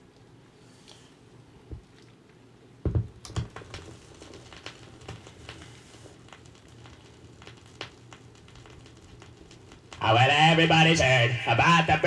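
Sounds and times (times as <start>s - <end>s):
vinyl crackles and pops: 1.6s - 12.0s
stylus thumps on record: 2.8s - 10.2s.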